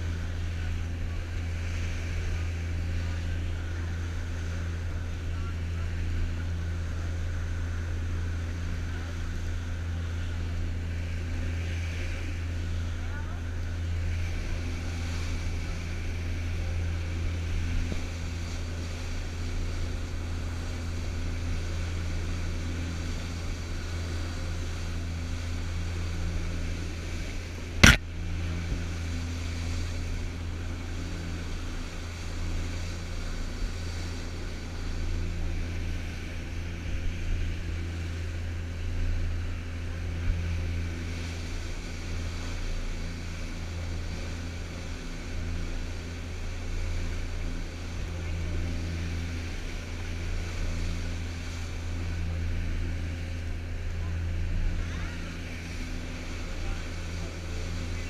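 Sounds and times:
boat engines humming: 0:00.0 - 0:58.0
wake and wind rushing: 0:13.6 - 0:58.0.

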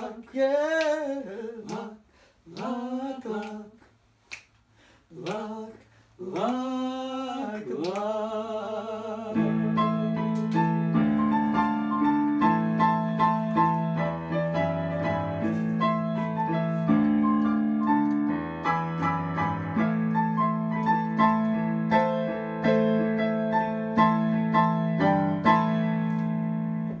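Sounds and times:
digital piano chords: 0:09.3 - 0:27.0.

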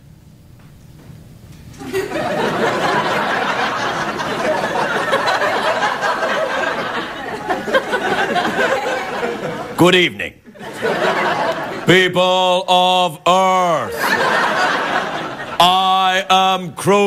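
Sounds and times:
audience laughter: 0:01.8 - 0:12.2, 0:13.6 - 0:16.3.

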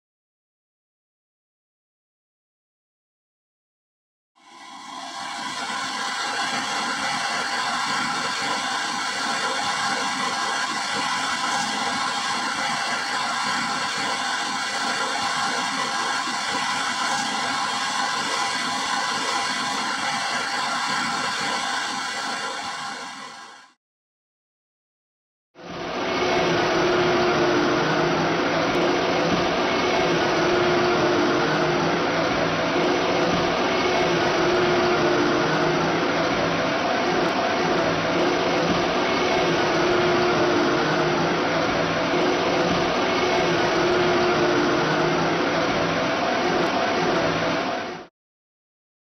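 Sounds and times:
blower rushing: 0:25.9 - 0:47.8
low machine hum: 0:26.0 - 0:47.4.

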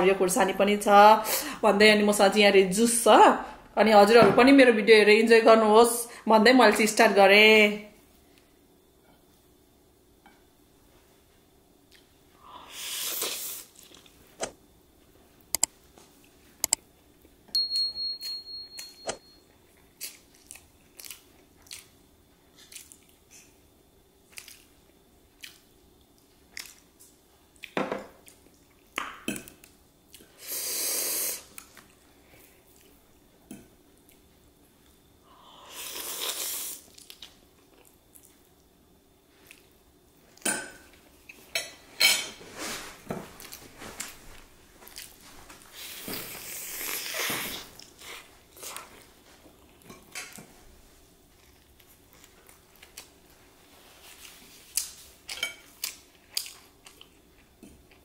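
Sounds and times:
chewing: 0:19.7 - 0:23.5, 0:25.4 - 0:26.9, 0:54.1 - 0:58.0.

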